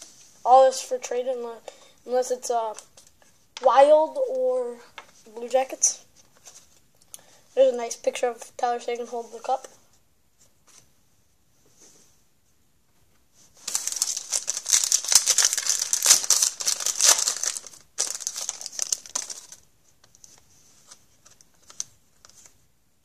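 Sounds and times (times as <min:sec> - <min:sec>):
card pack wrapper crinkling and tearing: 0:13.6 - 0:19.7, 0:20.9 - 0:22.5.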